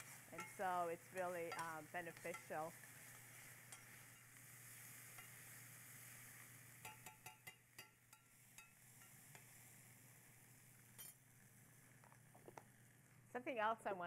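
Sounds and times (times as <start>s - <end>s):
metal spoon clinking on pan: 0.0s - 4.4s, 5.1s - 5.6s, 6.8s - 9.5s, 10.9s - 11.2s
food sizzling in a skillet: 0.0s - 14.0s.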